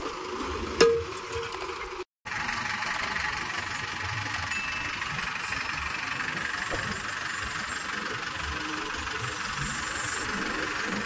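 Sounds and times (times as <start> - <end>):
tractor diesel engine idling: 1.8 - 11.0.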